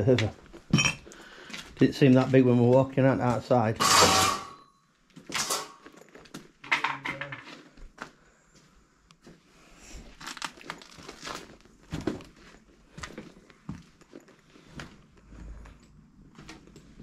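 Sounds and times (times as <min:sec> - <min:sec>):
footsteps crunching over debris: 0:10.1 - 0:15.0.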